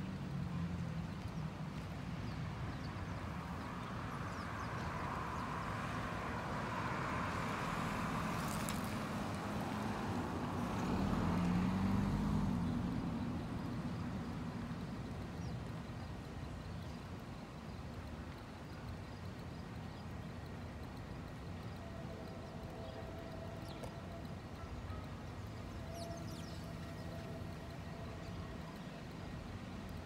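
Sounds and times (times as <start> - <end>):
car passing: 3.3 - 16.3.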